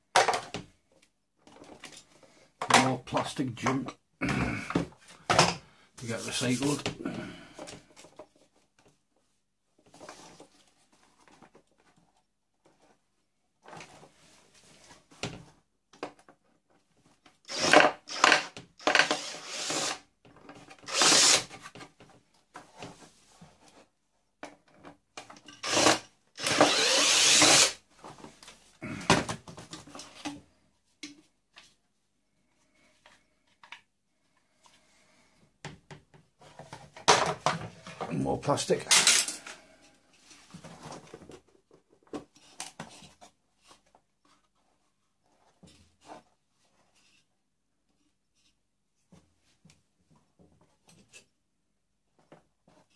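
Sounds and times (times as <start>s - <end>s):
plastic parts clattering on wood: 0.1s - 0.7s, 36.4s - 38.2s, 38.8s - 39.6s
cordless drill bursts: 17.5s - 20.0s, 20.9s - 21.5s, 25.6s - 27.8s.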